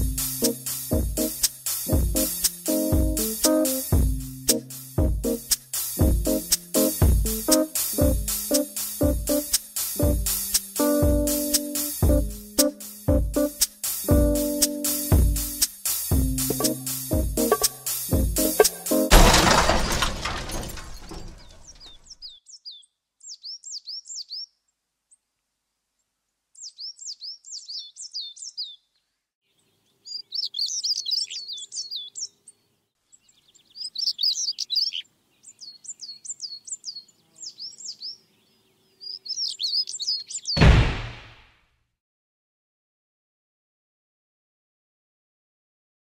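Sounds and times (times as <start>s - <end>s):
loud music: 0.0s - 19.2s
songbird chirping: 0.0s - 19.2s, 20.9s - 25.3s, 26.0s - 40.6s.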